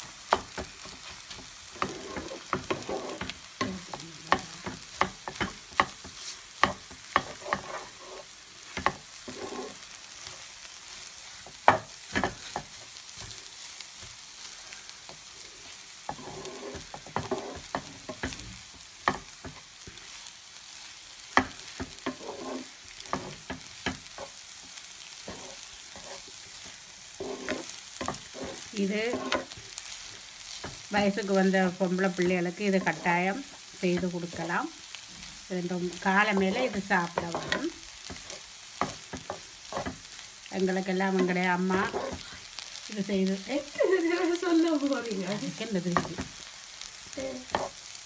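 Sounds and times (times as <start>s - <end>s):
food sizzling: 0.0s - 48.0s
spatula scraping frying pan: 0.1s - 14.2s, 15.0s - 20.3s, 21.2s - 42.7s, 47.4s - 47.8s.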